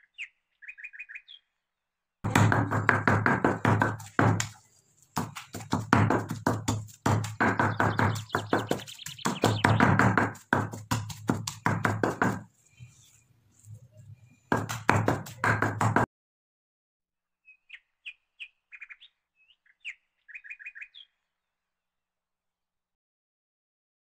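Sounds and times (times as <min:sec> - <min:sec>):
high bird chirps: 0:00.0 - 0:01.6, 0:07.5 - 0:10.0, 0:17.4 - 0:21.2
wooden pestle pounding in mortar: 0:02.3 - 0:12.5, 0:14.5 - 0:16.1.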